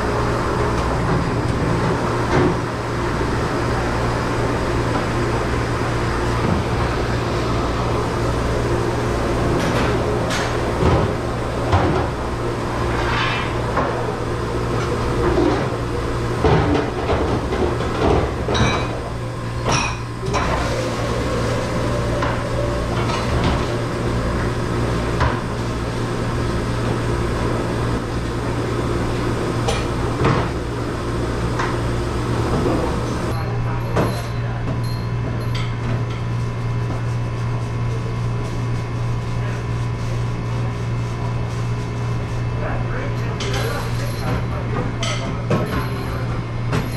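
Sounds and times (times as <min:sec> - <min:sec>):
low machine hum: 0:00.0 - 0:46.9
dishes and racks clattering: 0:16.4 - 0:23.8.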